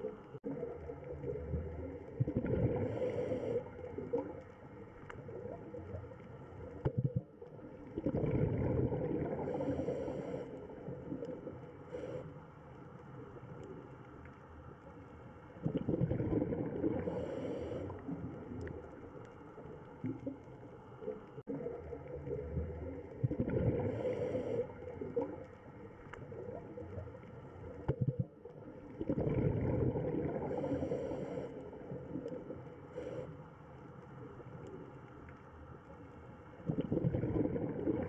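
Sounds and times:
gurgling exhaled bubbles: 0.0s - 12.2s, 15.6s - 19.0s, 21.4s - 33.1s, 36.6s - 38.0s.

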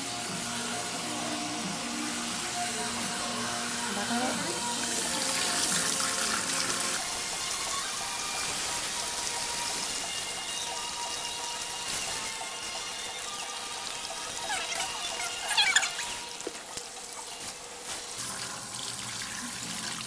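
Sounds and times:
water spraying from hose: 0.0s - 20.0s.

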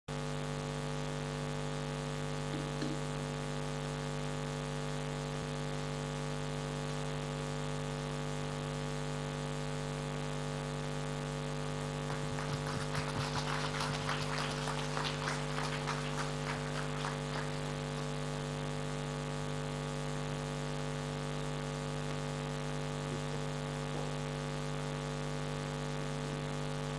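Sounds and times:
steady low hum: 0.1s - 26.9s
people clapping: 12.0s - 18.3s.

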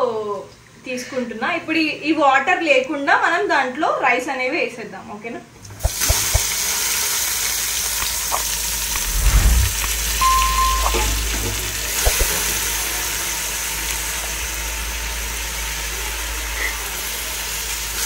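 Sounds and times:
rice sizzling in hot oil: 5.8s - 9.0s, 11.8s - 18.0s
short beep: 9.0s - 11.3s.

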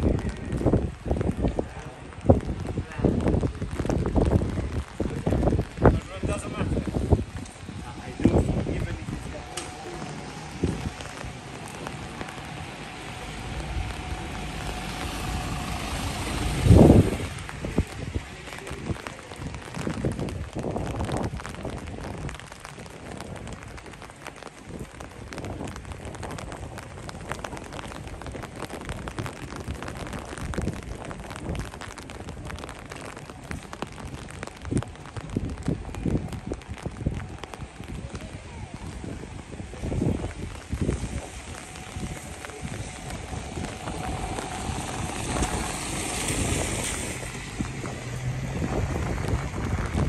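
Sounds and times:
dense crackling patter: 0.0s - 50.0s
vehicle passing by: 8.0s - 18.8s, 41.8s - 50.0s.

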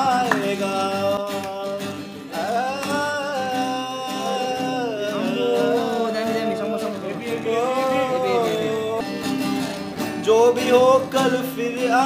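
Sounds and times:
acoustic guitar: 0.0s - 12.0s
man singing a held note: 2.3s - 9.0s.

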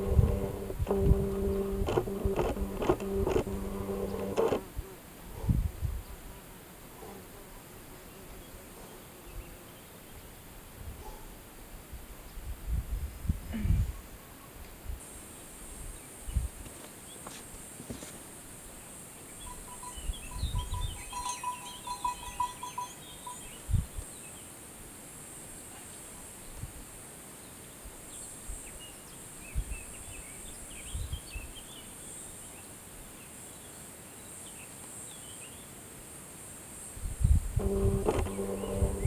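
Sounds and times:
high insect drone: 0.0s - 4.6s, 37.6s - 39.0s
low thumps: 0.0s - 4.6s, 37.6s - 39.0s
quick pulsed notes: 0.0s - 4.7s, 37.6s - 39.0s
birds chirping: 19.4s - 23.7s, 37.6s - 39.0s.

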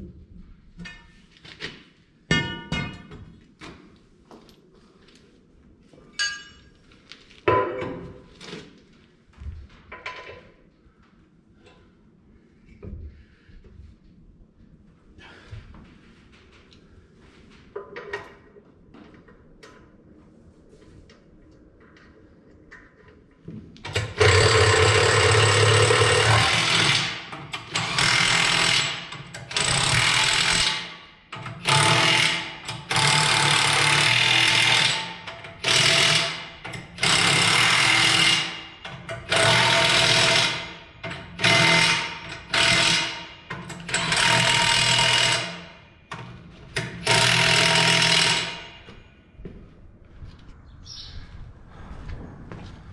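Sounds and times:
impact wrench hammering: 23.9s - 45.7s, 46.8s - 48.9s.

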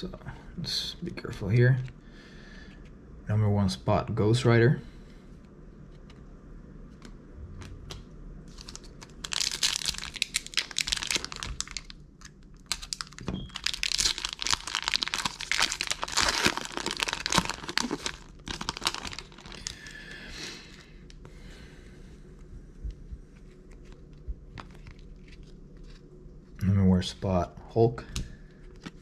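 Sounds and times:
foil wrapper tearing and crinkling: 8.5s - 19.9s.

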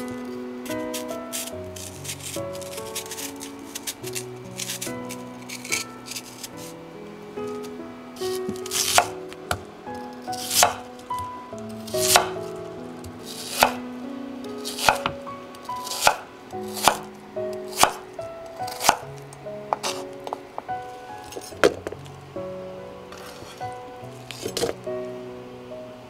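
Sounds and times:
knife chopping on wooden board: 8.5s - 9.1s, 10.4s - 10.8s, 12.0s - 12.4s, 13.3s - 13.8s, 14.7s - 15.2s, 15.8s - 16.2s, 16.8s - 17.0s, 17.7s - 18.0s, 18.7s - 19.0s.

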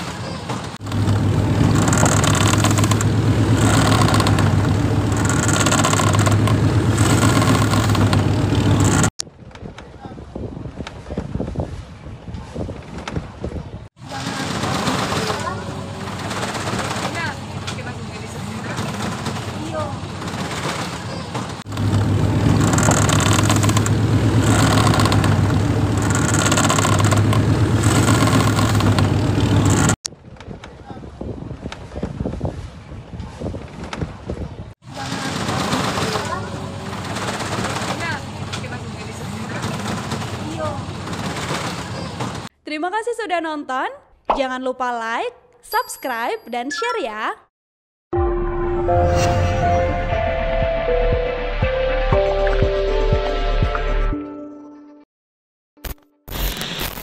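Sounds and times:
boat engine running: 0.0s - 9.2s, 14.0s - 30.0s, 34.8s - 42.5s
wind and sea rushing: 0.0s - 42.5s.

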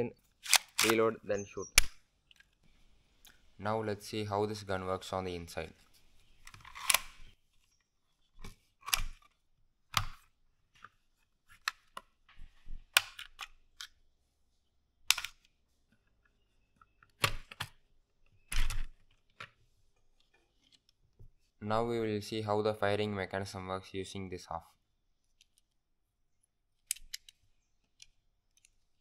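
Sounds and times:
plastic clicks and snaps: 0.4s - 1.1s, 15.0s - 15.5s, 26.8s - 29.0s.

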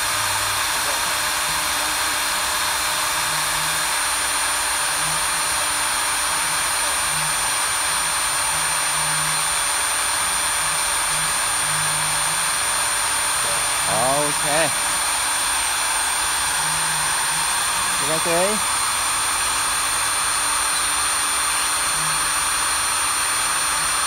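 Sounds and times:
small electric motor whirring: 0.0s - 24.0s
thin high whine: 11.9s - 22.8s.

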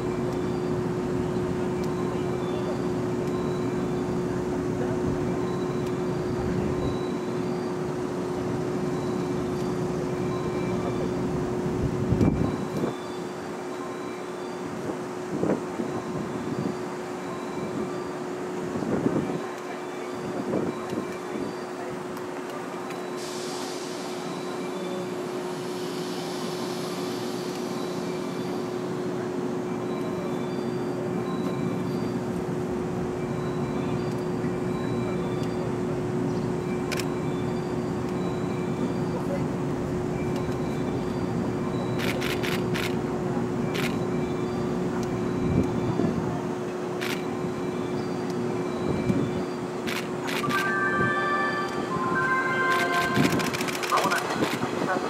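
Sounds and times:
electric hum of trains: 0.0s - 55.0s
steady hiss: 23.1s - 28.8s.

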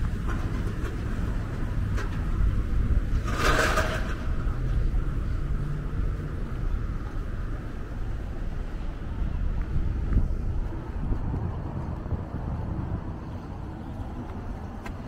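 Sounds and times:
low rumble of street traffic: 0.0s - 15.0s.

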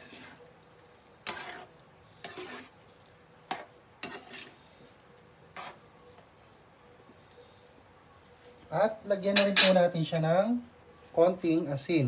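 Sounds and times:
metal spatula scraping wok: 0.0s - 0.4s, 1.2s - 2.9s, 3.5s - 4.6s, 5.5s - 5.8s.

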